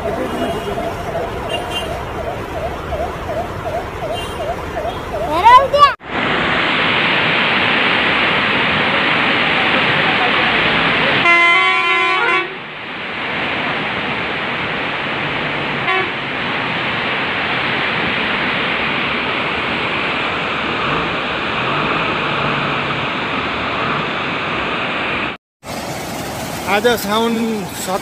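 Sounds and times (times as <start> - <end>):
flooded river roaring: 0.0 - 28.0
horn: 11.2 - 12.6, 15.8 - 16.2.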